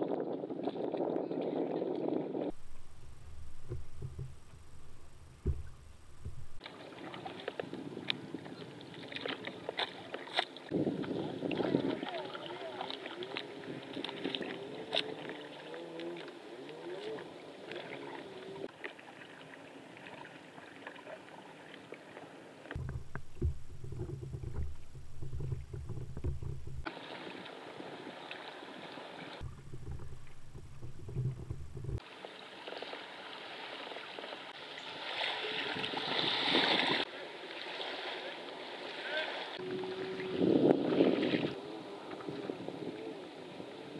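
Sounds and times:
water splashing around kayak: 0:00.0 - 0:43.9
low rumble: 0:02.5 - 0:06.6, 0:22.8 - 0:26.9, 0:29.4 - 0:32.0.

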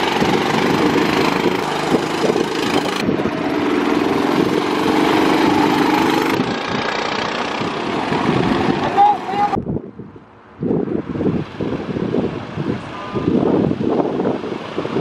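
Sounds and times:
go-kart engines buzzing: 0:00.0 - 0:09.6.

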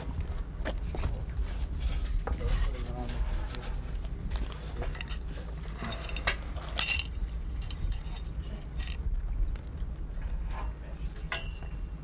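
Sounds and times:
steady low rumble: 0:00.0 - 0:12.0
metallic clinks and knocks: 0:04.8 - 0:09.1.

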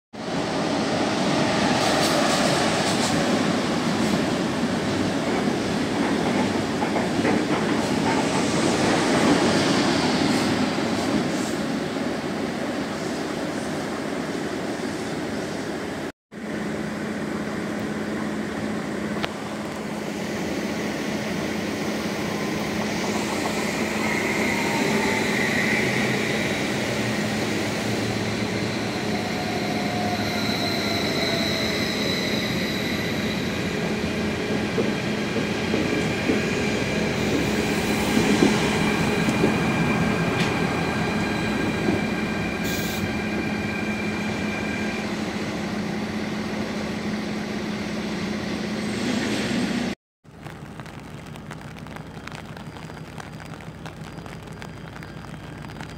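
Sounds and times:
diesel locomotive passing: 0:00.2 - 0:50.0
electric train rolling by: 0:00.2 - 0:50.0
train wheel squeal: 0:22.1 - 0:49.8.

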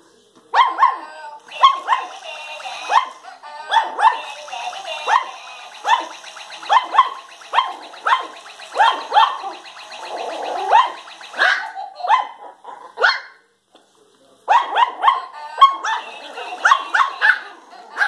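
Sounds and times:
toy motor whirring: 0:01.4 - 0:11.9, 0:15.8 - 0:18.0.

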